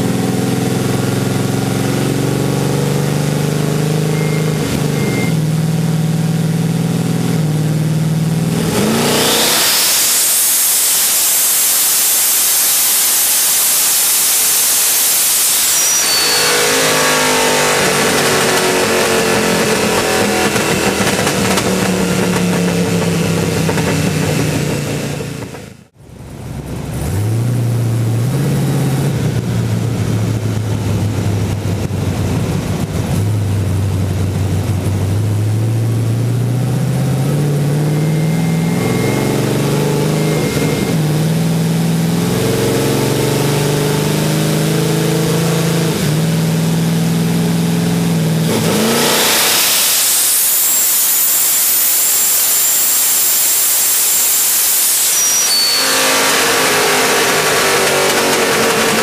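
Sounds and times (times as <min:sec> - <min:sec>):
turbocharged engine revving: 0:00.0 - 0:59.0
turbo rush and hiss: 0:09.6 - 0:18.5, 0:49.3 - 0:57.3.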